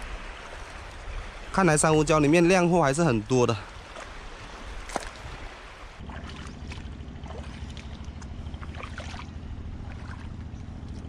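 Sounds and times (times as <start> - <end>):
footsteps splashing through water: 3.6 - 11.0
low motor hum: 3.7 - 11.0.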